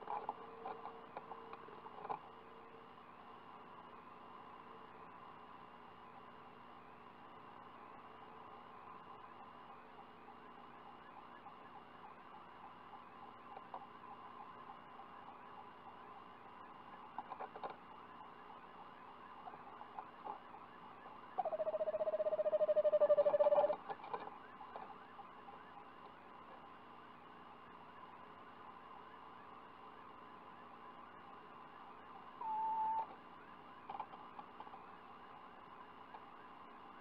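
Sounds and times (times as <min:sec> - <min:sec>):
owl trill: 0:21.4 - 0:23.8, 0:32.4 - 0:33.2.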